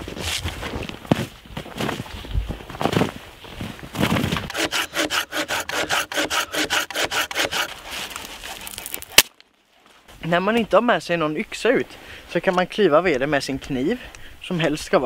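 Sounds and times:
footsteps crunching in snow: 0:00.0 - 0:04.5, 0:07.6 - 0:09.1
hand saw cutting log: 0:04.5 - 0:09.3.

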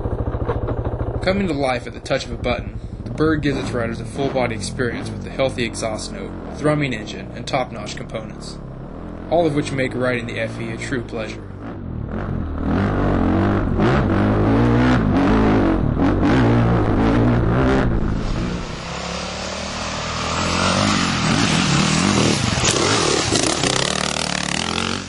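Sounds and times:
motorcycle engine revving: 0:00.0 - 0:25.0
rushing noise: 0:12.1 - 0:25.0.

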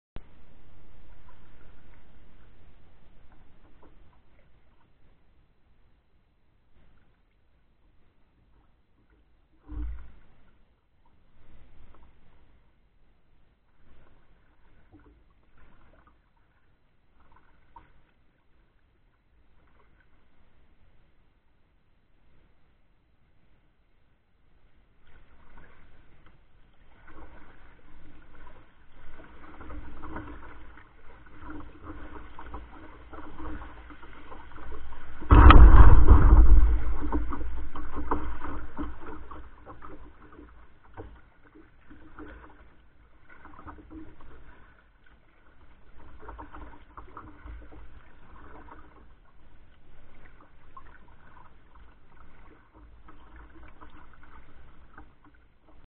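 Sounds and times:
paddle strokes splashing in water: 0:00.2 - 0:05.5, 0:13.6 - 0:21.0, 0:24.6 - 0:55.9.

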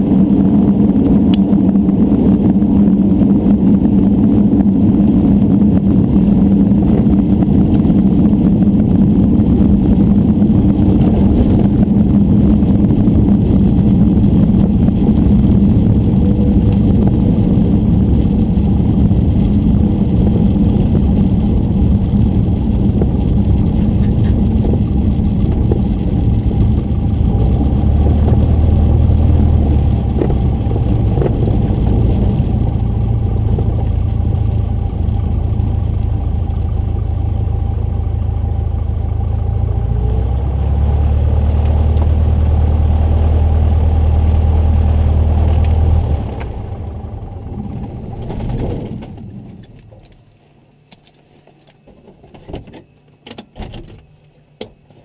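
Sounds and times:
light aircraft engine and propeller: 0:00.0 - 0:55.0.

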